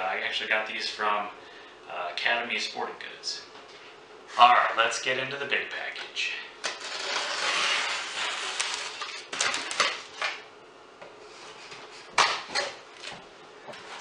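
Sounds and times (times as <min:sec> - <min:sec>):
knife slitting packing tape: 0:06.7 - 0:10.3.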